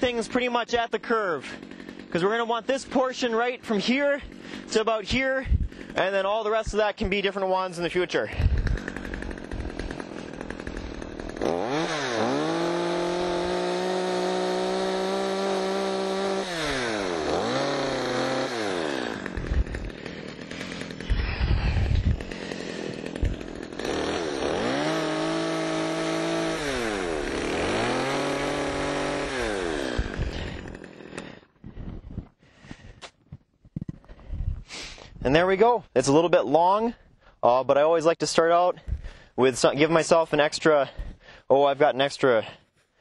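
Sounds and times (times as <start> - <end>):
chainsaw revving and idling: 0.0 - 31.6.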